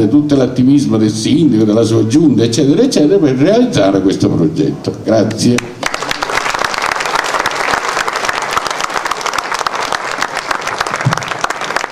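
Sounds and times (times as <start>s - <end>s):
audience applauding: 5.6s - 11.9s.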